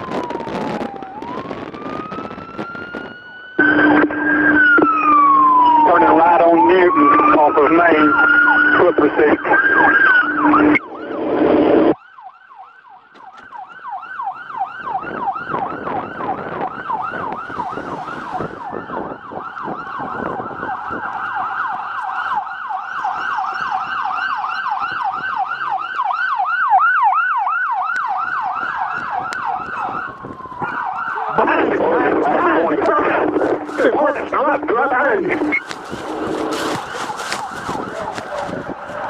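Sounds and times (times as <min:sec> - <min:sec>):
police siren yelping: 0:00.0 - 0:39.0
rustling: 0:35.4 - 0:39.0.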